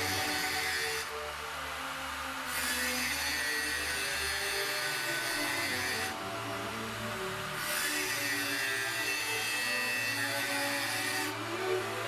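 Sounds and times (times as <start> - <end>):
angle grinder cutting steel: 0.0 - 1.6, 2.3 - 12.0.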